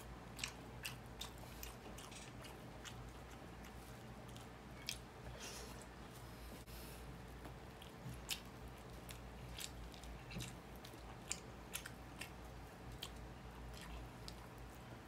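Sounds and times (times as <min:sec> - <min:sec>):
chewing: 0:00.1 - 0:06.2, 0:07.2 - 0:14.9.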